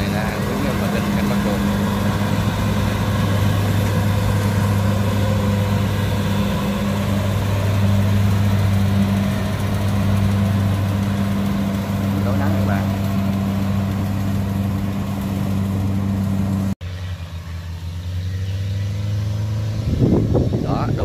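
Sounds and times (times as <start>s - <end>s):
combine harvester engine hum: 0.0s - 21.0s.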